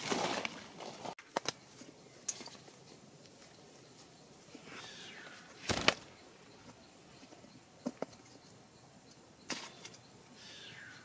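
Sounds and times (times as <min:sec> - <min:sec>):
parrot wings flapping: 0:05.6 - 0:06.1.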